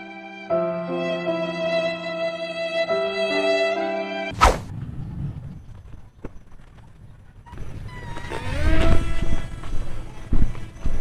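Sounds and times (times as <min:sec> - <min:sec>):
wind rumble on microphone: 0:04.6 - 0:06.2, 0:06.8 - 0:11.0.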